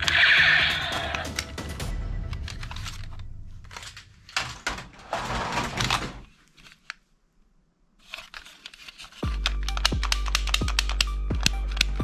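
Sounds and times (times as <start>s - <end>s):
plastic toy guns clattering: 2.3s - 7.0s, 8.0s - 12.0s.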